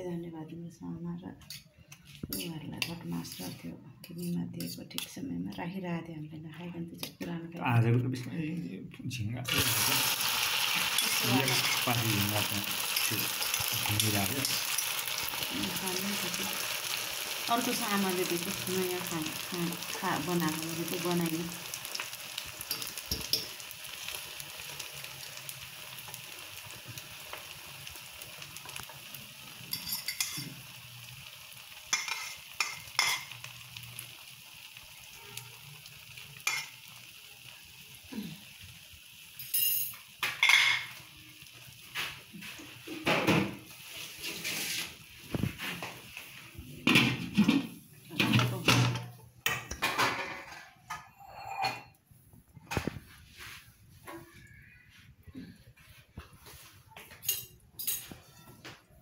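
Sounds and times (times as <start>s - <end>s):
omelette sizzling in a frying pan: 9.5s - 48.7s
fork scraping and tapping pan: 22.7s - 23.6s, 29.7s - 30.5s, 31.9s - 33.4s
metal pots and lid clattering: 29.7s - 30.6s, 31.9s - 33.4s, 46.9s - 52.0s.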